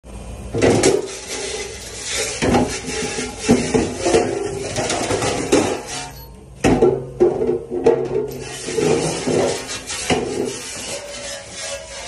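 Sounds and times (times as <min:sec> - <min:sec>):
metal pans clanking: 0:00.6 - 0:12.0.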